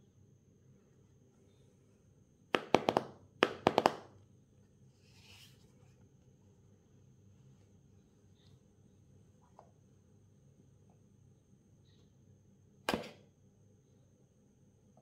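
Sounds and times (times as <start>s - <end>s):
sharp clicks and taps: 2.6s - 4.0s
soft rustle: 4.9s - 6.1s.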